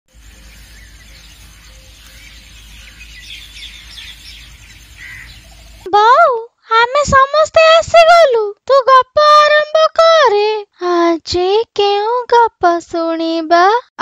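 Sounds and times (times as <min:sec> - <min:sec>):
faint birds chirping: 0:00.1 - 0:05.9.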